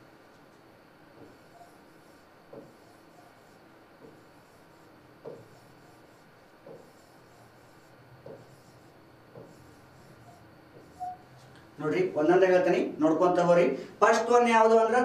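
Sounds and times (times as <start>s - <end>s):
pen scratching on a board: 1.2s - 11.3s.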